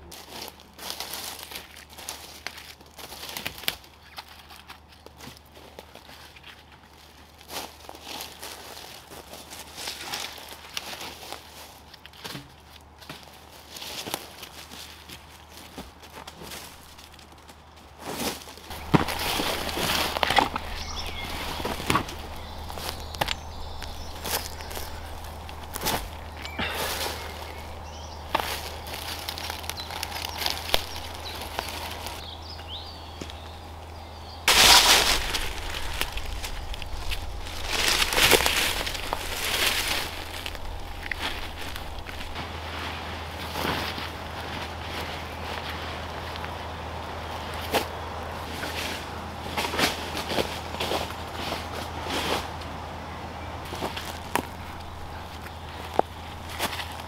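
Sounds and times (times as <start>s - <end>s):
dry leaves and twigs crackling: 0.0s - 57.0s
twigs snapping: 15.8s - 42.6s, 53.7s - 57.0s
bird chirping: 18.7s - 42.6s, 53.0s - 57.0s.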